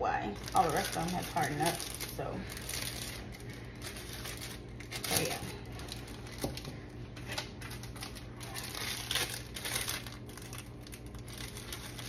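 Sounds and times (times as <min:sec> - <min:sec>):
plastic bags crinkling: 0:00.2 - 0:12.0.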